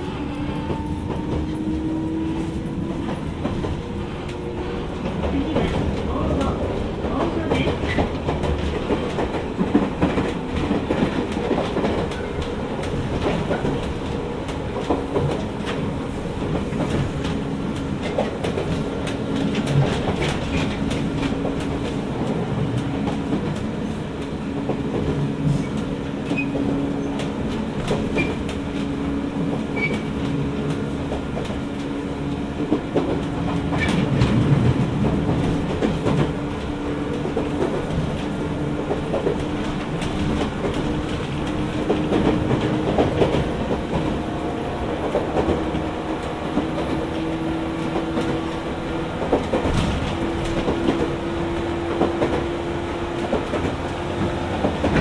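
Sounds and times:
train hum and rumble: 0.0 - 55.0
train wheels clicking over rail joints: 0.5 - 55.0.

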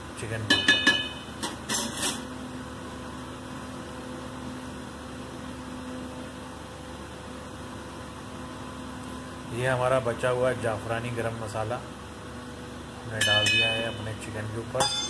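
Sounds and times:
steady mechanical hum: 0.0 - 15.0
spoon clinking against pot: 0.5 - 1.3, 13.2 - 14.0.

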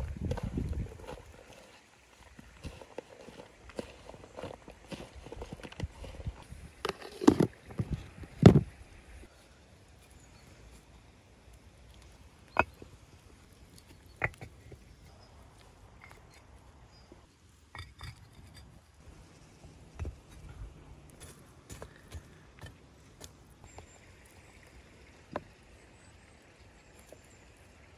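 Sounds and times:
bricks knocking and clattering: 2.3 - 8.7, 12.5 - 13.0, 13.7 - 15.1, 17.7 - 18.7, 20.0 - 20.6.

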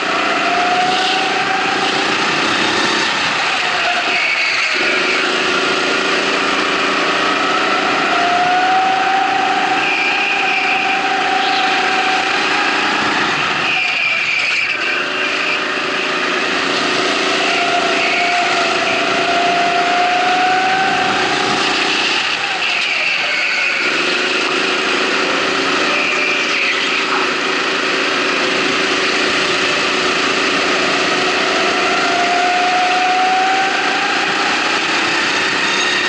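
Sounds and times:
kart engine accelerating: 0.0 - 36.0.

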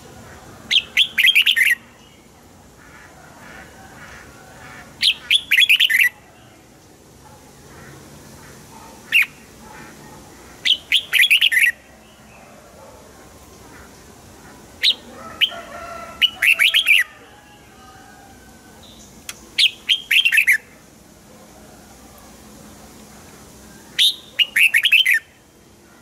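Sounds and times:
bird singing whistled phrases: 0.7 - 1.8, 5.0 - 6.1, 10.7 - 11.8, 19.6 - 20.6, 24.0 - 25.3.

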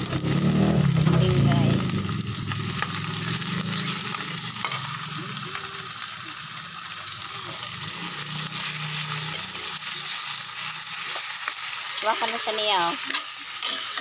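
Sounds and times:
meat sizzling in a wok: 0.0 - 14.0
spatula scraping a wok: 2.1 - 5.5, 7.0 - 14.0.

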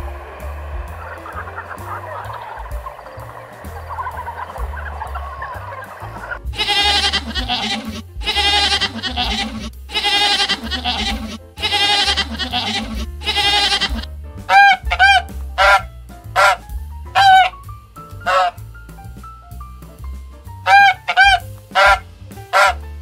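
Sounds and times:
geese honking: 0.0 - 16.6, 17.2 - 17.5, 18.2 - 18.6, 20.7 - 22.8
quiet background music: 0.0 - 23.0
goats bleating: 6.6 - 15.0.

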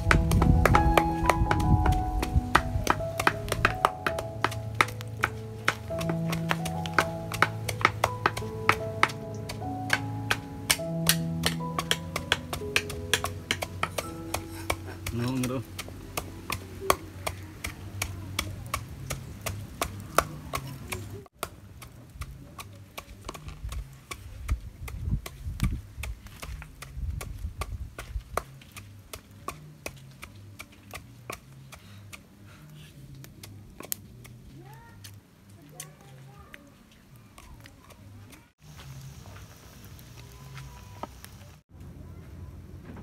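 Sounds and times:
background music with low bass: 0.0 - 16.8
pestle pounding in wooden mortar: 0.0 - 32.3, 33.2 - 34.4.

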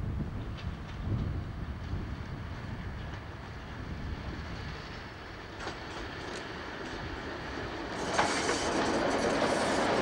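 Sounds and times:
diesel locomotive engine rumble: 0.0 - 10.0.

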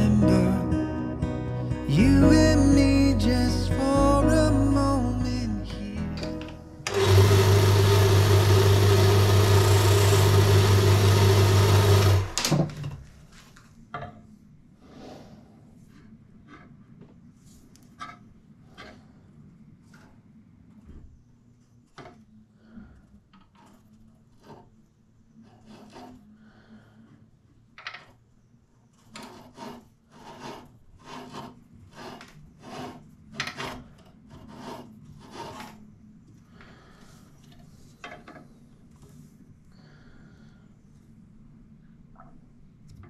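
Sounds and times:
hand scraping on wood: 25.4 - 26.3, 29.0 - 35.8.

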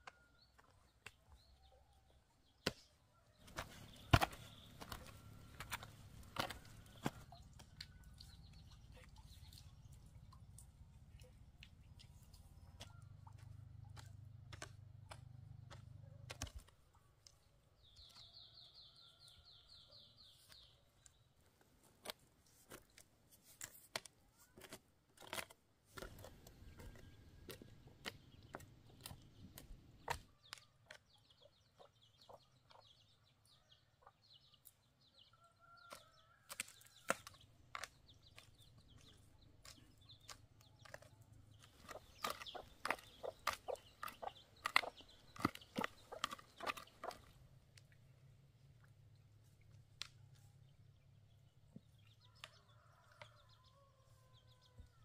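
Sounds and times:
faint chickens clucking: 11.2 - 16.6, 26.0 - 47.6, 50.9 - 55.0.

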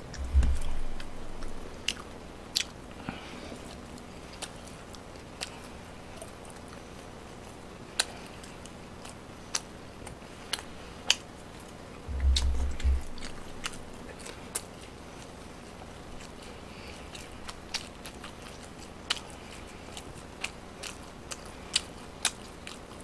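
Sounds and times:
low dull thump: 0.0 - 1.6, 12.1 - 13.8
person chewing food: 0.0 - 23.0.

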